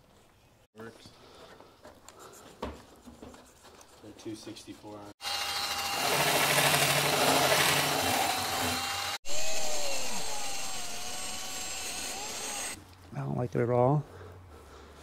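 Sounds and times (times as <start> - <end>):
power tool grinding whir: 5.2 - 12.8.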